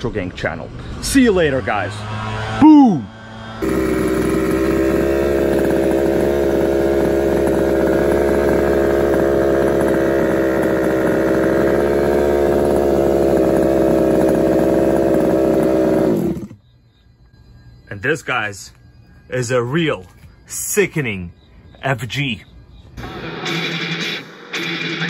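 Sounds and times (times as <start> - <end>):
small two-stroke engine idling: 3.1 - 16.6.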